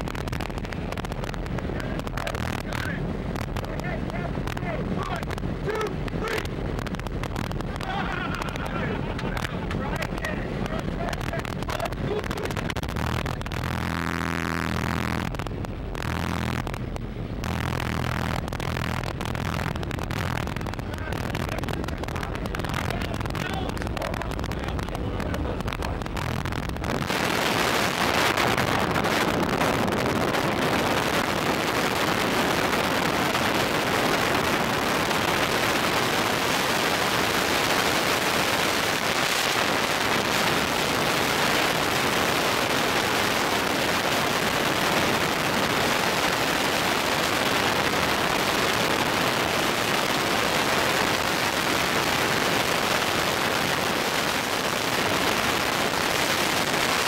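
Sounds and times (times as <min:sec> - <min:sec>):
wind rushing over microphone: 0:00.0 - 0:57.0
airplane engine running: 0:00.1 - 0:35.8.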